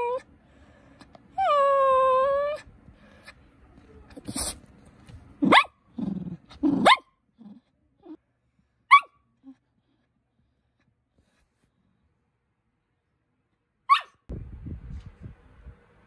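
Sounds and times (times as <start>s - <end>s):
dog whining: 0.0s - 0.3s, 1.3s - 2.7s
dog yipping: 5.4s - 5.8s, 6.6s - 7.2s, 8.9s - 9.6s, 13.9s - 14.3s
dog grumbling growl: 5.9s - 8.2s.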